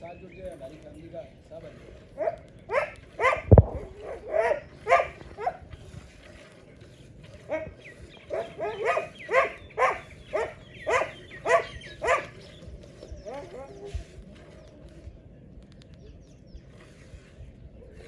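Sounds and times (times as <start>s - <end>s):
animal barking: 2.2s - 5.6s, 7.5s - 12.4s.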